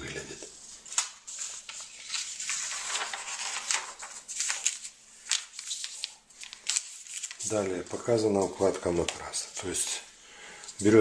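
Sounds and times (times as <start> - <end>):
paper page rustling and crackling: 0.6 - 9.4.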